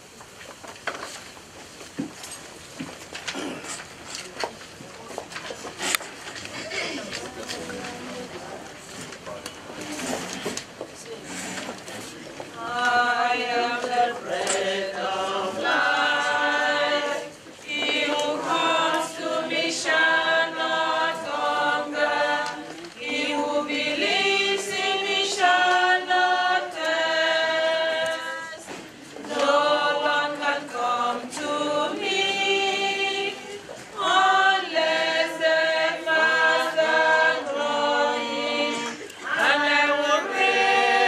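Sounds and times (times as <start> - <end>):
choir singing a hymn: 12.6 - 41.0.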